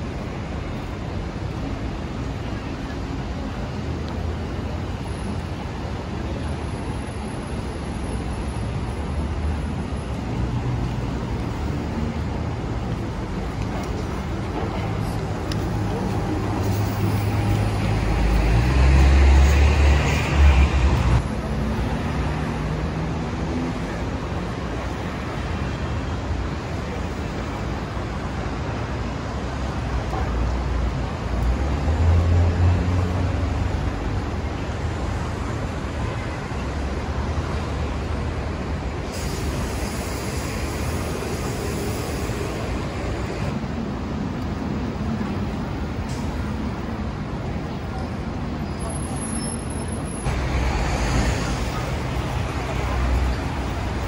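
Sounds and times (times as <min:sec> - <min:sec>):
heavy vehicle engine rumble: 0:00.0 - 0:54.0
passing traffic: 0:00.0 - 0:54.0.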